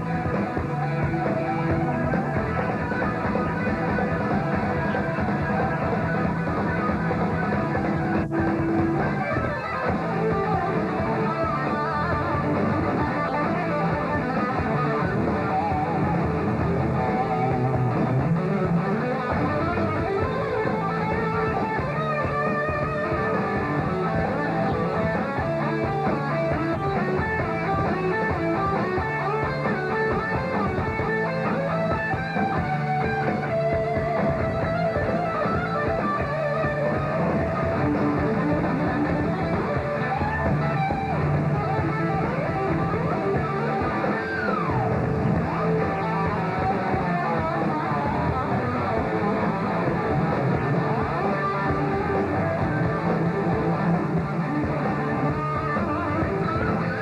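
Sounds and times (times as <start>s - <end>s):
live rock band playing: 0.0s - 57.0s.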